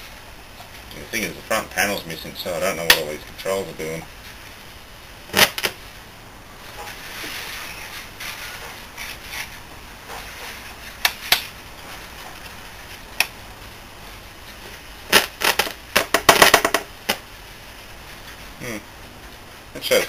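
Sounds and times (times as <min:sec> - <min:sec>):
radio static hiss and crackle: 0:00.0 - 0:20.0
sharp pops: 0:05.3 - 0:05.8, 0:11.0 - 0:11.6, 0:15.1 - 0:17.3.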